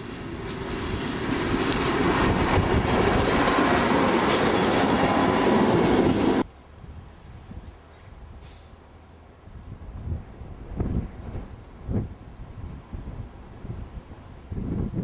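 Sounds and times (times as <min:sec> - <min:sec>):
train wheels on rails: 0:00.0 - 0:06.5
diesel railcar engine: 0:00.0 - 0:15.0
faint wind: 0:00.0 - 0:15.0.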